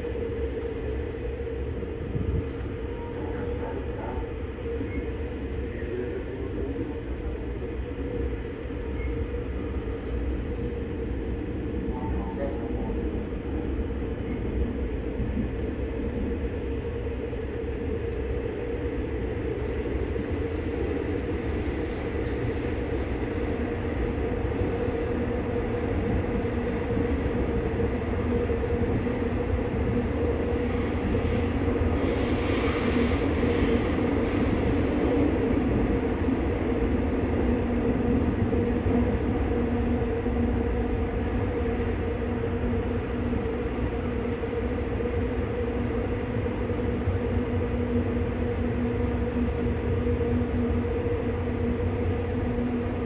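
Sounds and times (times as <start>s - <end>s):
train hum: 0.0s - 53.0s
train wheels rumbling on rails: 0.0s - 53.0s.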